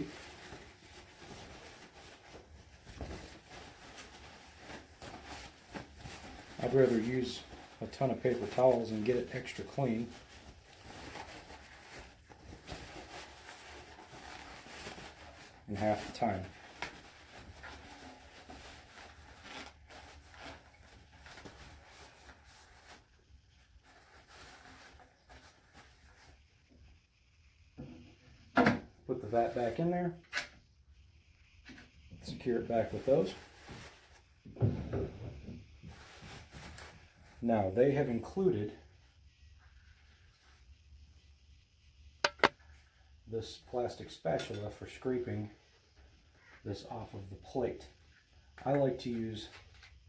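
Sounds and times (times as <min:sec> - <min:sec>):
paper towels rustling: 0:00.0 - 0:26.9, 0:32.2 - 0:34.5, 0:35.4 - 0:41.4.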